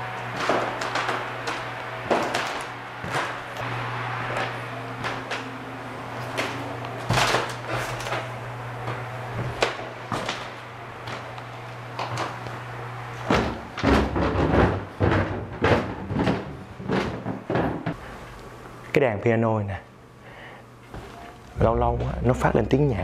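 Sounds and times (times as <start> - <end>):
steady low hum: 0.0 - 23.0
footsteps on wooden floorboards: 0.3 - 3.7, 6.2 - 12.6, 13.2 - 18.0.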